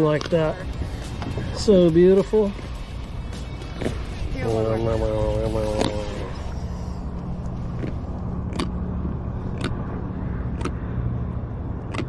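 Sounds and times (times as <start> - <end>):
steady low hum: 0.0 - 12.0
sharp clicks: 9.5 - 9.8, 10.5 - 10.8, 11.8 - 12.0.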